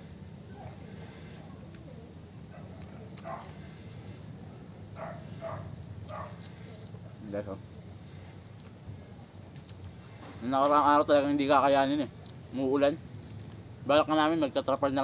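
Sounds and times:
insects chirring: 0.0 - 15.0
dog barking: 2.5 - 3.7, 5.0 - 6.5.

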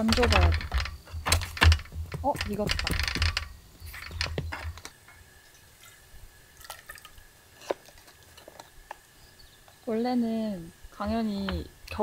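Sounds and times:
liquid sloshing and dripping: 5.8 - 8.5.

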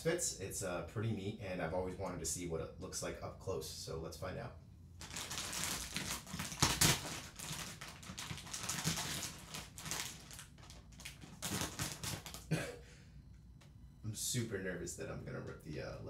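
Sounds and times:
plastic wrapping crinkling: 5.0 - 12.5.

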